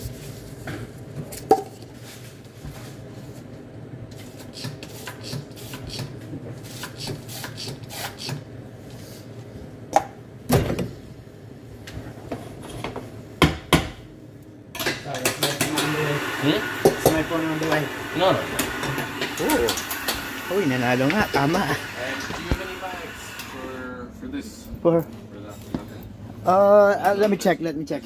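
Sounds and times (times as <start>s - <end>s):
steady low hum: 15.9s - 28.0s.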